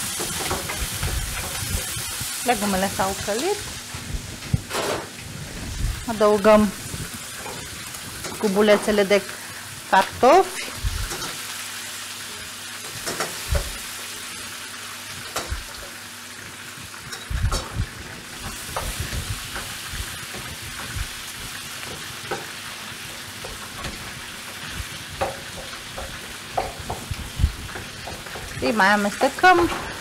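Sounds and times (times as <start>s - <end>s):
vegetables sizzling in oil: 0.0s - 30.0s
wooden spoon knocking pan: 25.2s - 27.1s.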